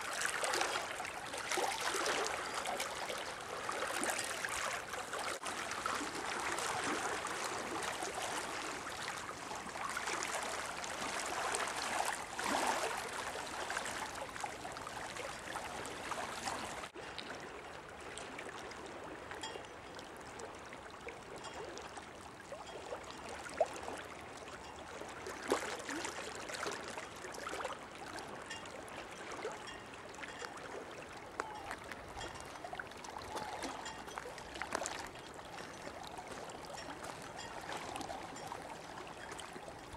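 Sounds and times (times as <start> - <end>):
water lapping among stones: 0.0 - 17.3, 24.6 - 39.9
small water splashes: 0.0 - 39.9.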